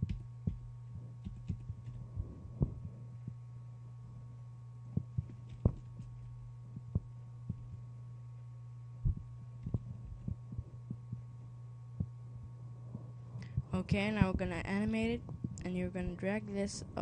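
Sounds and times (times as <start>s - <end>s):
low electrical hum: 0.0s - 17.0s
keyboard typing: 1.2s - 2.0s.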